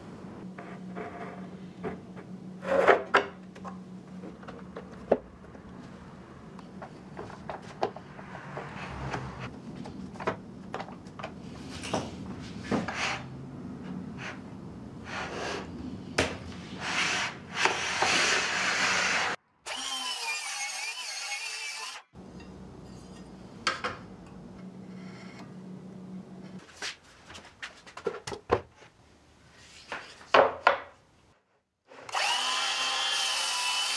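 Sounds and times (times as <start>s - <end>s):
sawing wood: 16.8s - 22.2s, 32.0s - 33.9s
high whine from a tool: 32.1s - 33.9s.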